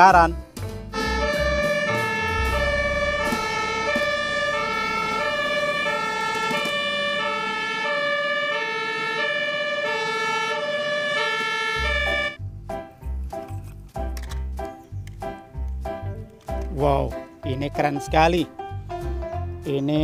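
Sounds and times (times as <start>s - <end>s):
low rumble: 0.8s - 8.0s
two-tone siren: 1.0s - 12.4s.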